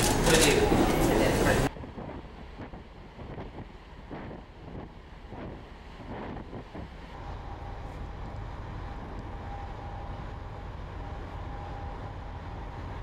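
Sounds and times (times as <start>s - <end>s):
ship engine rumbling: 0.0s - 13.0s
steady even hum: 0.0s - 13.0s
wind on microphone: 0.7s - 7.2s.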